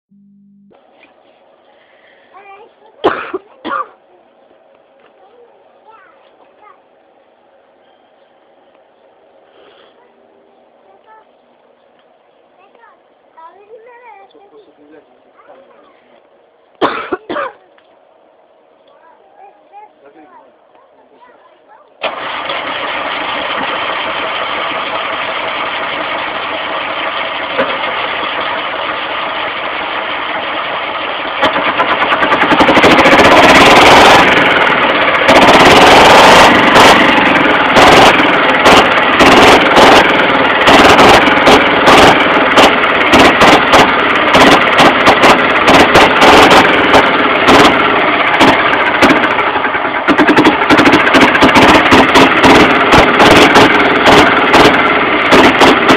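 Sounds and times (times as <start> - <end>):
old engine running rough: 22.0 - 55.9.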